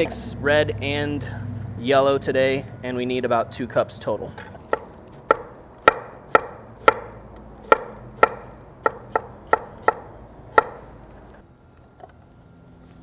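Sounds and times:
knife chopping on wooden board: 0:04.7 - 0:10.8.

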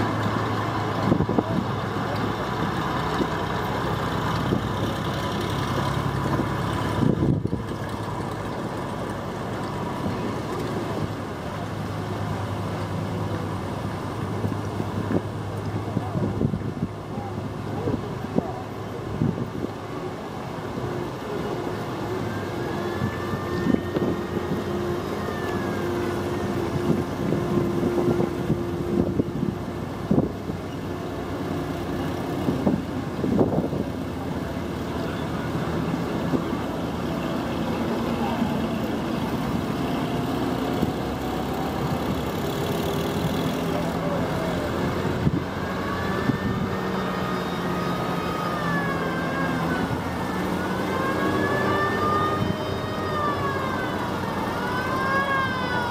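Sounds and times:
vehicle engines humming: 0:00.0 - 0:55.9
siren wailing: 0:21.4 - 0:29.5, 0:44.0 - 0:55.9.

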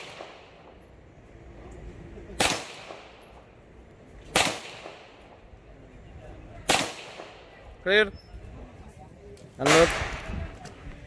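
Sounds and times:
pistol shots with echo: 0:00.0 - 0:00.8, 0:02.4 - 0:03.5, 0:04.3 - 0:05.4, 0:06.6 - 0:07.5, 0:09.6 - 0:10.3.

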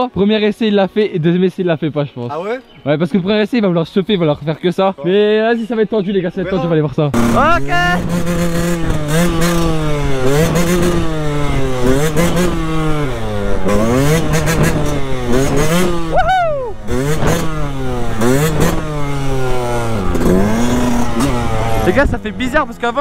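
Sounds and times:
motorcycle engine revving: 0:07.1 - 0:23.0.

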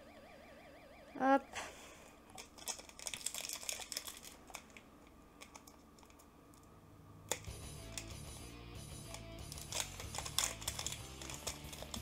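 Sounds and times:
foil wrapper crinkling: 0:02.3 - 0:04.8, 0:09.4 - 0:12.0.

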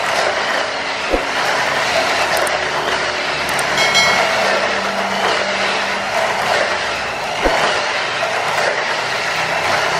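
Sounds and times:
toy car motor whirring: 0:01.6 - 0:02.9
wheels rattling on plastic track: 0:07.6 - 0:09.9.

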